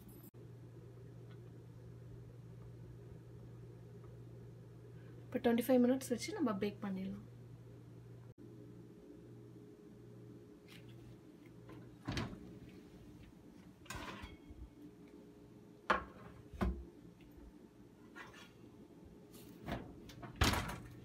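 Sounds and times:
oven door opening: 11.8 - 12.7, 13.8 - 14.5, 19.6 - 21.0
metal pans clanking on oven rack: 13.9 - 14.6.

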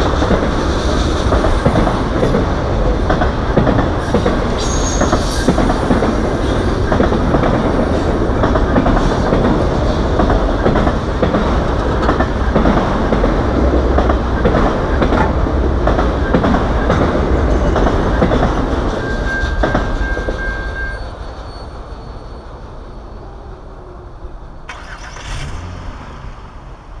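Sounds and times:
freight train wheels clicking: 0.0 - 21.5.

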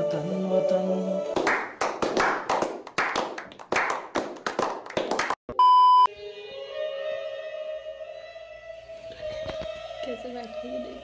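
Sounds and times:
group clapping in rhythm: 1.3 - 5.4
test-tone beep: 5.5 - 6.1.

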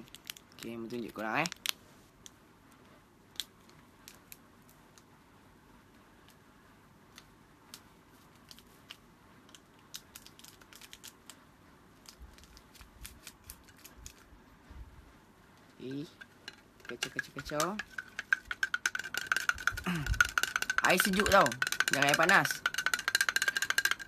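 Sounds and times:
drink sachet crinkling: 0.0 - 1.8, 9.8 - 11.4, 12.0 - 14.3, 16.5 - 24.0.

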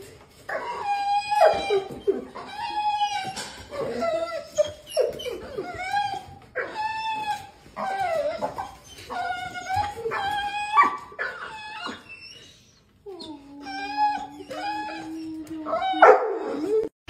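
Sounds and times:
dog whining and yowling: 0.5 - 16.9.

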